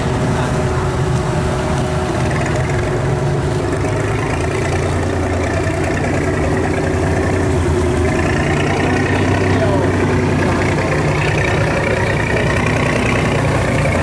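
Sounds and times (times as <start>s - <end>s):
barge engine running: 0.0s - 14.0s.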